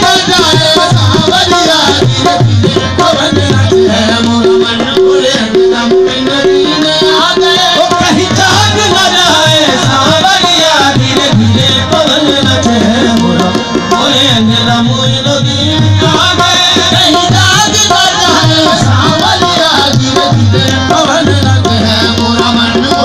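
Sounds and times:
tabla drumming: 0.0 - 23.0.

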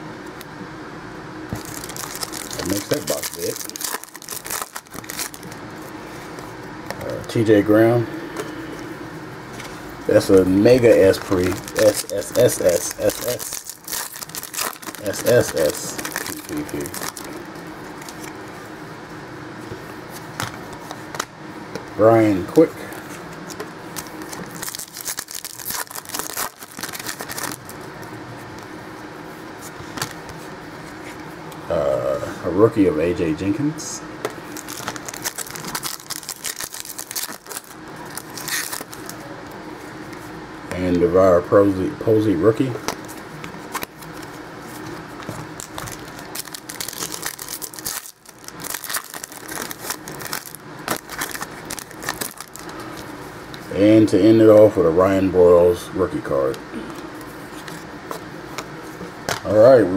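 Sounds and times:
foil wrapper crinkling and tearing: 1.5 - 5.6, 10.1 - 18.3, 23.4 - 27.8, 34.5 - 39.2, 42.9 - 53.0.

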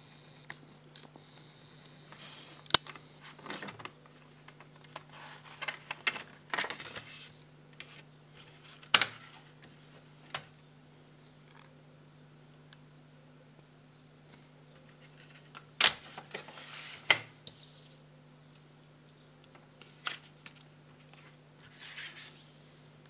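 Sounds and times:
plastic cd case clicks and rustling: 2.7 - 7.1.

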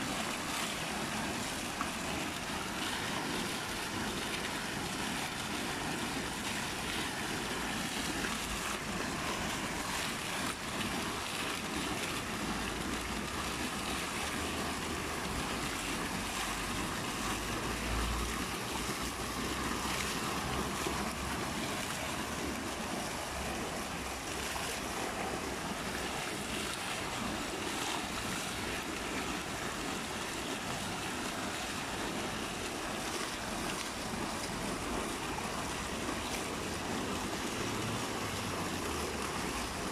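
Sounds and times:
fountain water splashing: 0.0 - 39.9.

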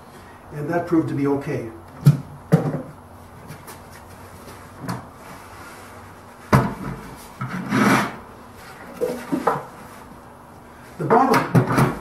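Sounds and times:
wood scraping on bench: 5.2 - 10.1.

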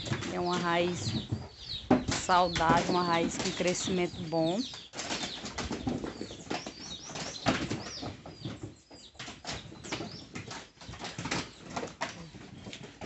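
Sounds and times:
bird chirps: 0.5 - 10.5.

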